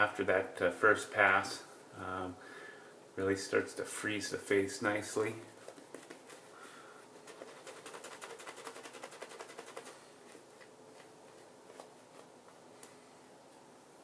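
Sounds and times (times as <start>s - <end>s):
shaving brush swishing on lather: 5.0s - 12.4s.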